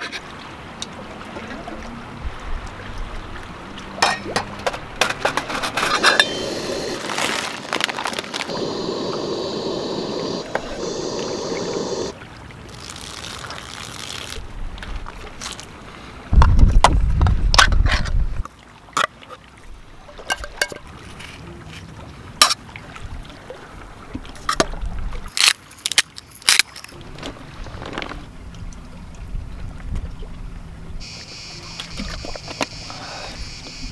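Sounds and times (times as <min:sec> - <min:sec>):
utensils clicking on metal pot: 0:05.0 - 0:06.5.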